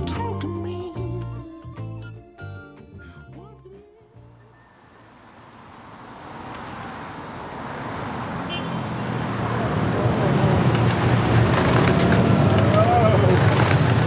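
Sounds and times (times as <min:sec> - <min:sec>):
city street traffic: 0:00.0 - 0:14.0
low vehicle engine hum: 0:02.8 - 0:14.0.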